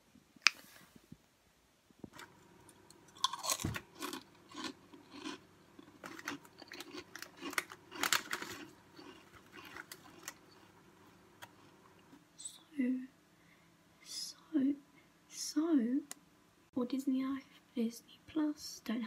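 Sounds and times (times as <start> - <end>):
person biting and chewing food: 2.2 - 12.2.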